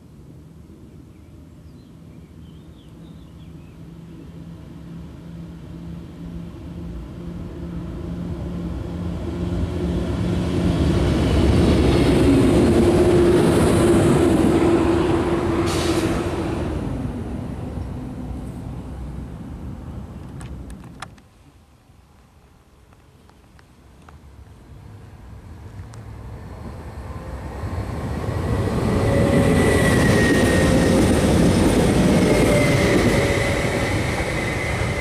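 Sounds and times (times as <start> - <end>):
train passing with rumbling wheels: 0.0 - 23.2, 24.2 - 35.0
short hiss: 15.6 - 16.2.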